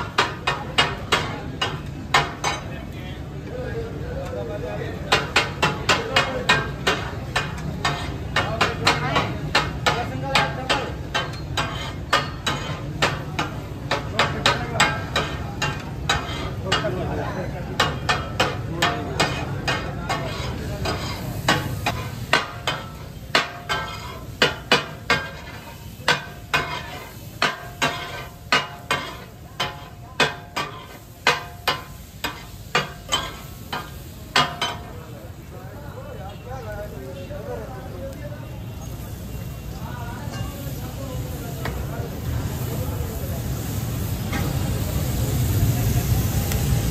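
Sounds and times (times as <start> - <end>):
metal spatulas clanging on griddle: 0.0 - 3.0, 4.2 - 35.1, 40.1 - 41.9, 44.3 - 44.9.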